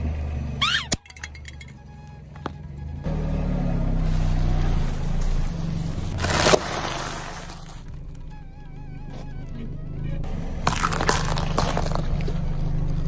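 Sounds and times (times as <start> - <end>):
car tyre rolling over asphalt: 1.4 - 13.0
loud crunch under wheel: 3.9 - 13.0.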